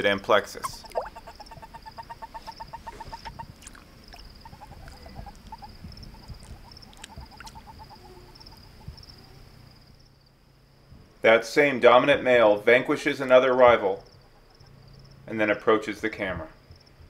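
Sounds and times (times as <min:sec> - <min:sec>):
toad chirping call: 0:00.6 - 0:09.4, 0:14.0 - 0:14.8.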